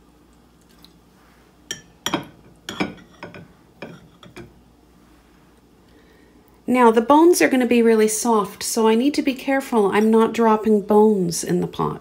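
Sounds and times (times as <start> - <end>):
fork clinking against a plate: 1.7 - 4.5.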